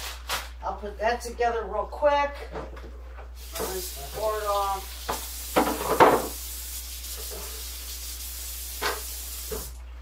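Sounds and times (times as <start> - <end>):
faucet running into sink: 3.4 - 9.8
cutting board scrubbed and knocking: 5.1 - 6.4.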